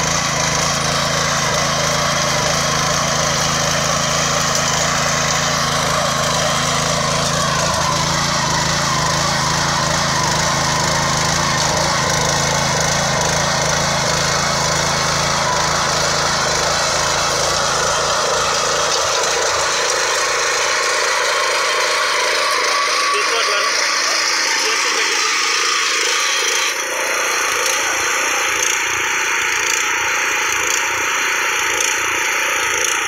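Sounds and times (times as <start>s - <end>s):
power weeder engine running: 0.0s - 33.0s.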